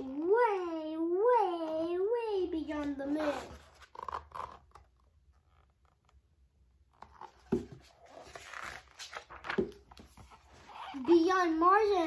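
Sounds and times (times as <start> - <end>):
soft book thumps: 7.0 - 8.4, 9.4 - 10.4
paper rustling: 7.0 - 11.1.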